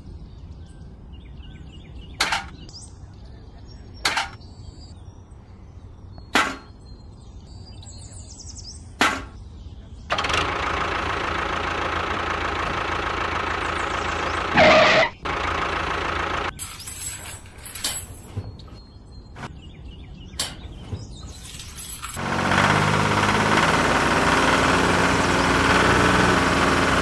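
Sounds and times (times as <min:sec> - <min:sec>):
toy tractor motor running: 0:10.1 - 0:16.6, 0:22.2 - 0:27.0.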